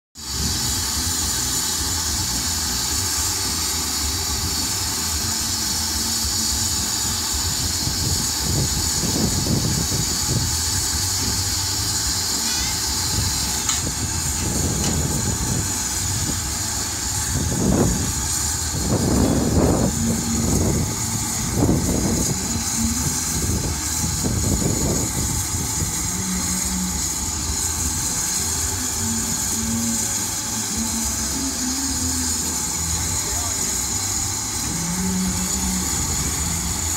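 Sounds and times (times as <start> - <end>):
steam hissing: 0.2 - 36.9.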